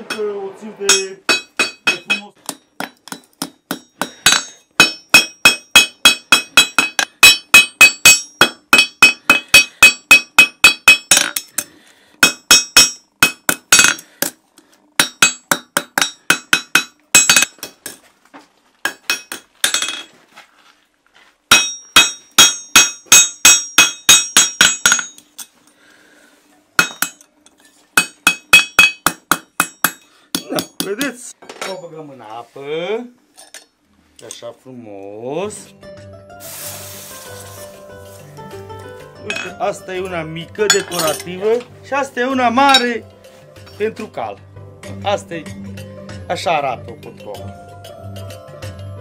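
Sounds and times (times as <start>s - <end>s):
hammer ringing on anvil: 0.9s - 2.3s, 2.9s - 11.6s, 21.5s - 25.2s.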